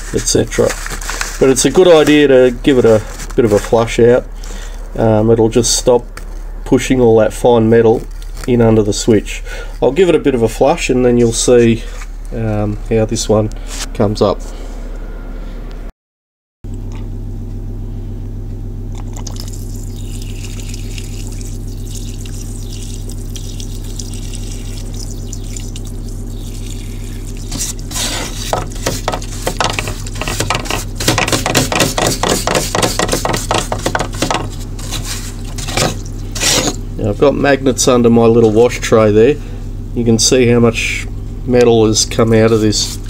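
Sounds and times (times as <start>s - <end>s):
brush splashing and scrubbing: 0.0s - 3.9s, 19.8s - 36.8s, 42.1s - 43.0s
pump humming: 16.7s - 37.3s
fluid pouring: 18.9s - 29.4s.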